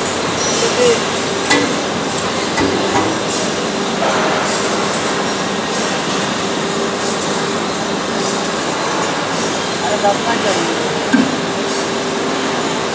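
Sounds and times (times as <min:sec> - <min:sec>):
hydraulic pump motor running: 0:00.0 - 0:04.0.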